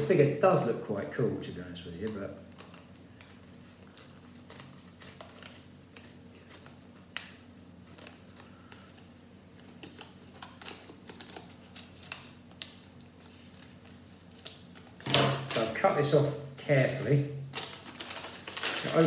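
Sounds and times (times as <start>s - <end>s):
paper rustling: 2.6s - 7.2s, 7.8s - 15.7s, 16.8s - 19.0s.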